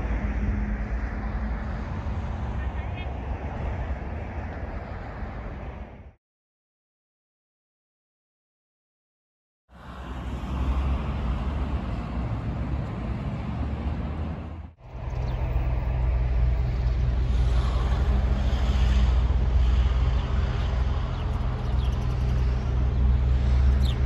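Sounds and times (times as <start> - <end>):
broad rushing outdoor noise: 0.0 - 6.2, 9.7 - 24.0
low motor drone: 14.5 - 24.0.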